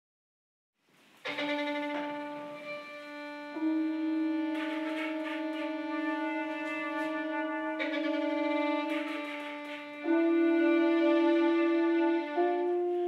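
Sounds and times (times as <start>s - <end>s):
flute: 1.2s - 13.0s
violin: 1.2s - 13.0s
bass trombone: 3.6s - 13.0s.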